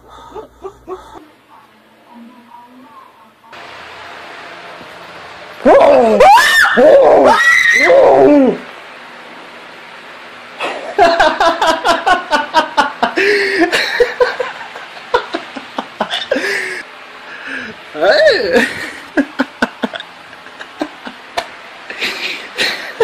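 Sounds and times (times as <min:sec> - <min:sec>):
person screaming: 0:05.6 - 0:08.6.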